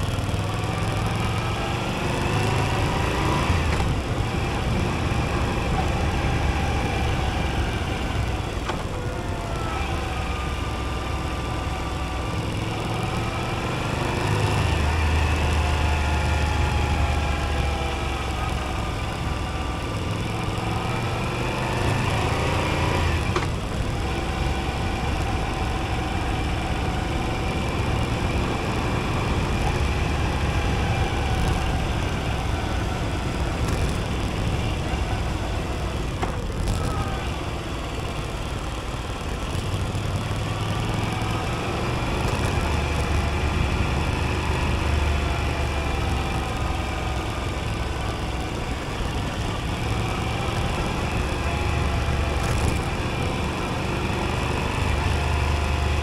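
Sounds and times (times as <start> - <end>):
motorcycle engine revving: 0.0 - 56.0
wind noise: 21.2 - 46.6.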